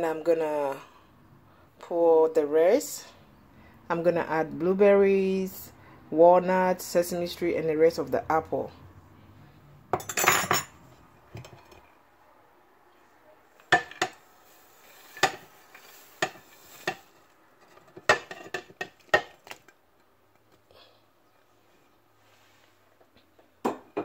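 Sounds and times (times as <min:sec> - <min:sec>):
ceramic crockery clinking: 0:09.9 - 0:10.8.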